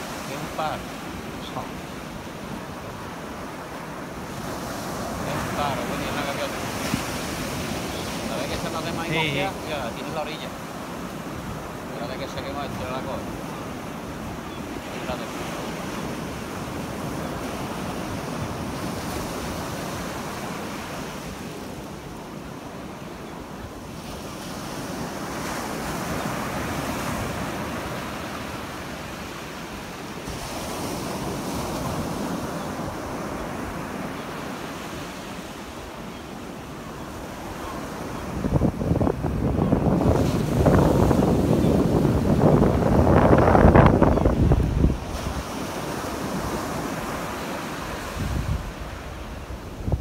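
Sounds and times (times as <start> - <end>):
ocean surf breaking: 0.0 - 50.0
wind buffeting microphone: 38.2 - 47.0, 48.0 - 50.0.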